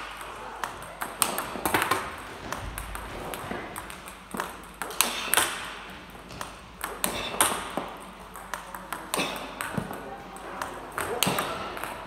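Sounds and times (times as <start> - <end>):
table tennis ball clicks: 6.3 - 12.0.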